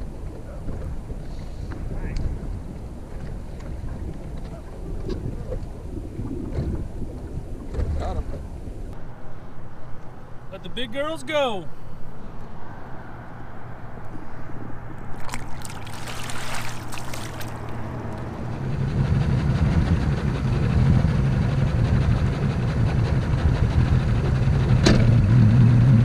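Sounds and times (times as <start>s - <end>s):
water noise: 0.0s - 9.0s, 14.2s - 20.0s
wind noise: 0.0s - 9.0s, 14.1s - 26.0s.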